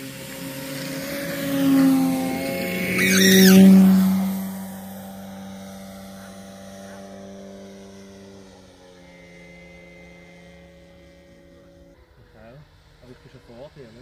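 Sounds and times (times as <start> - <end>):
model plane motor and propeller: 0.0 - 14.0.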